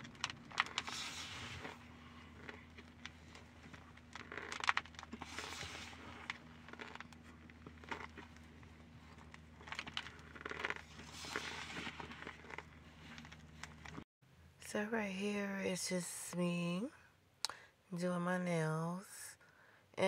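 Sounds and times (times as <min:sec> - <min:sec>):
cornstarch powder crunching: 0:00.0 - 0:14.0
low steady hum: 0:00.0 - 0:20.0.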